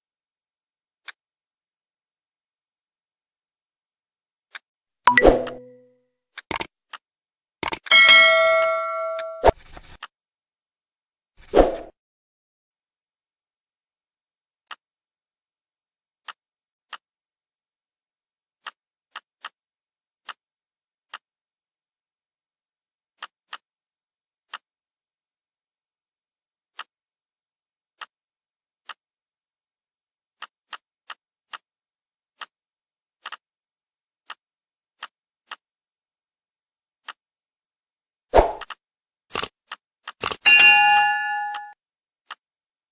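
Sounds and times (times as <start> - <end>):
computer mouse clicks: 6.4 - 6.7, 7.6 - 7.9, 38.6 - 40.4.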